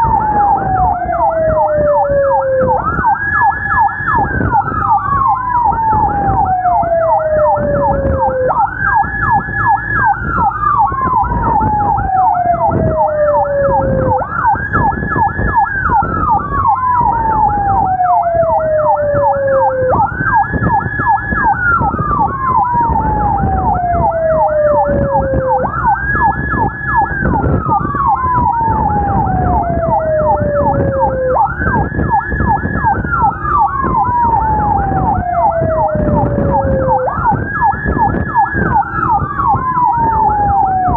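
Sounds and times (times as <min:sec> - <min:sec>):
engine and road noise: 0:00.0 - 0:40.9
fast warbling siren yelp: 0:00.0 - 0:40.9
rising and falling siren wail: 0:00.0 - 0:40.9.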